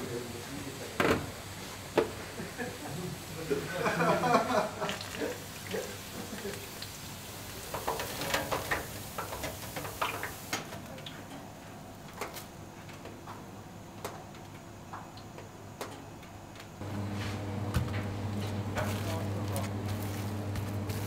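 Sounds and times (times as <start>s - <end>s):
hot oil hissing: 0.0s - 11.2s, 18.8s - 21.0s
steady low hum: 15.5s - 21.0s.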